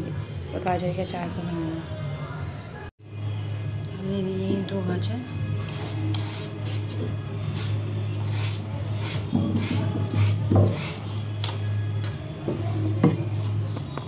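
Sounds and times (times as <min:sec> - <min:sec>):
vegetable peeler scraping carrot: 0:07.5 - 0:11.0.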